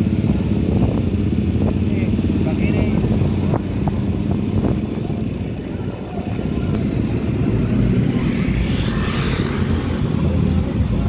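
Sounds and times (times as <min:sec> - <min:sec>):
street traffic: 0:00.0 - 0:11.0
vehicle engine and road noise: 0:00.0 - 0:11.0
music: 0:06.1 - 0:11.0.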